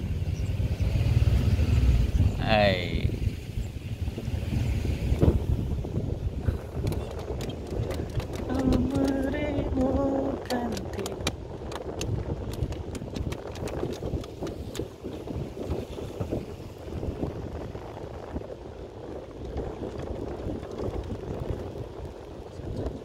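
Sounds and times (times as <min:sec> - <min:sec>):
truck engine and tyres rumbling: 0:00.0 - 0:23.0
wind buffeting microphone: 0:00.0 - 0:23.0
sharp clattering knocks: 0:06.8 - 0:14.9.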